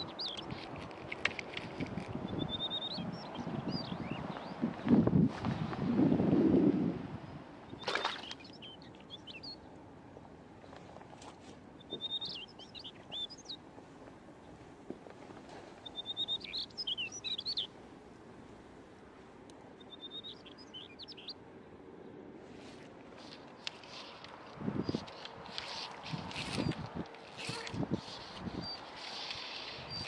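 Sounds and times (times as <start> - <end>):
songbird singing: 0.0 - 5.1, 7.3 - 9.9, 11.6 - 14.7, 15.7 - 18.3, 19.4 - 22.3, 23.2 - 30.0.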